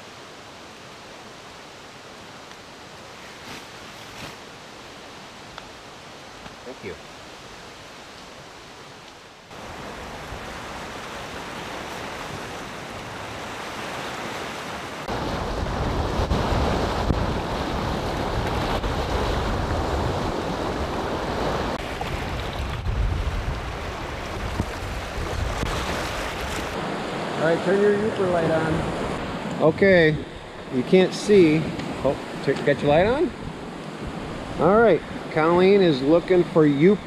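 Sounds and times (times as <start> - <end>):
waves breaking on rocky shore: 9.5 - 36.7
wind rumble on microphone: 15.1 - 27.0.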